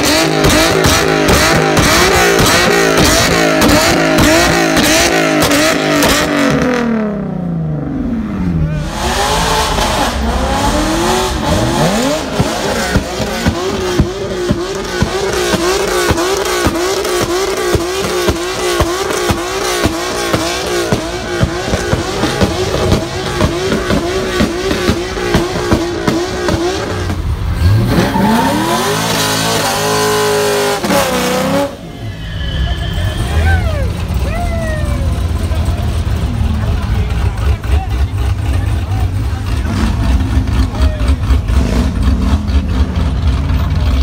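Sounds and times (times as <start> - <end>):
car engines revving hard: 0.0 - 44.0
tyre squeal: 27.9 - 35.2.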